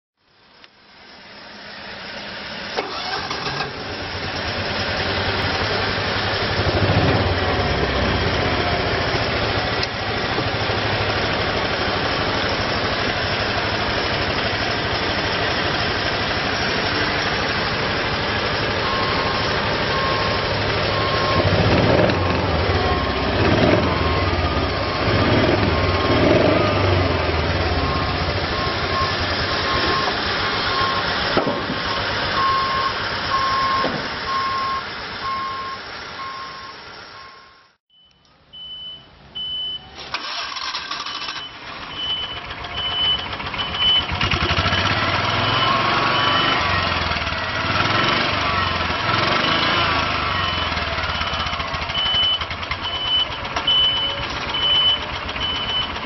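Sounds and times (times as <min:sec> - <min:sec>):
small engine revving: 0:02.8 - 0:12.9, 0:15.0 - 0:31.7, 0:43.8 - 0:52.2
repeating beep: 0:18.8 - 0:26.8, 0:27.7 - 0:31.1, 0:31.9 - 0:40.0, 0:41.0 - 0:46.8, 0:50.2 - 0:56.0.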